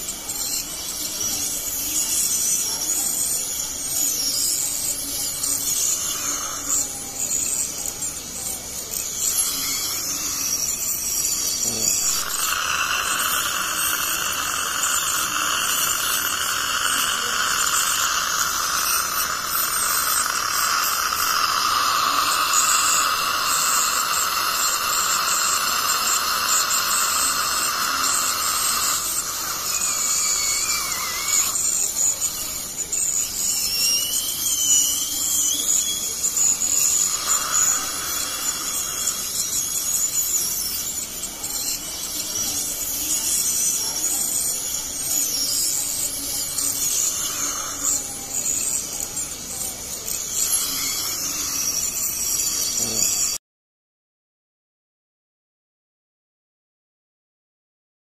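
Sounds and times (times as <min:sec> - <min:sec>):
dental scaler whine: 0:00.0 - 0:53.4
water spray hissing: 0:11.8 - 0:32.4, 0:36.6 - 0:39.4.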